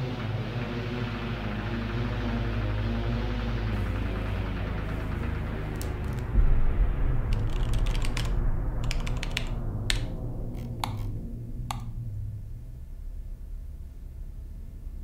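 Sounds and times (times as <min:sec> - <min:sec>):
low steady drone: 0:00.0 - 0:15.0
computer keyboard typing: 0:07.3 - 0:11.9.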